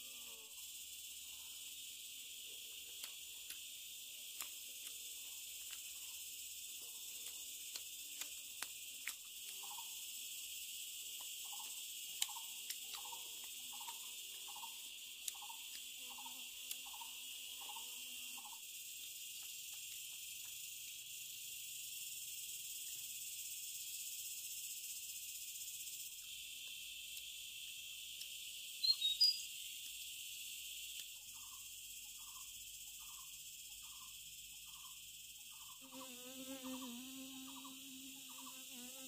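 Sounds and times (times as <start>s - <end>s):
high-pitched insect chorus: 0.0s - 39.0s
sharp clicks: 7.2s - 9.6s.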